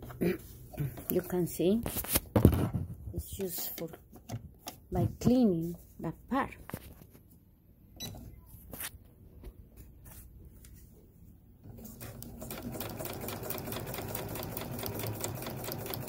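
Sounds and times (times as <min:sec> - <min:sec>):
sewing machine stitching: 0:11.7 - 0:16.0.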